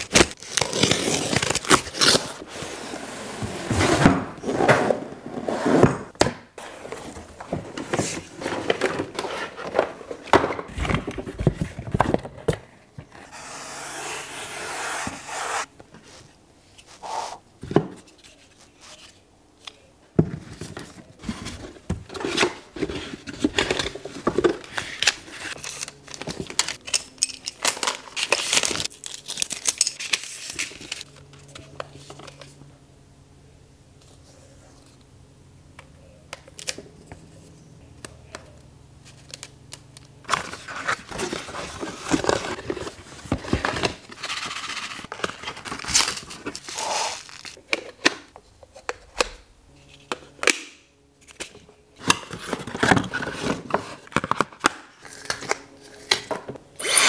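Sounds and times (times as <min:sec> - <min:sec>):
packaging rustling and crinkling: 0:40.3 - 0:47.6.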